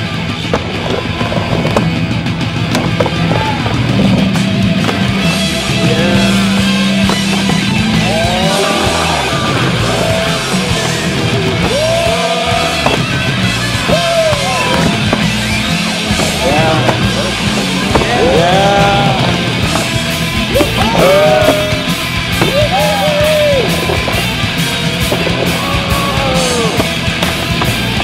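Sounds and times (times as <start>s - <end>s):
steady bass line: 0.0s - 28.0s
music with singing voice: 3.2s - 28.0s.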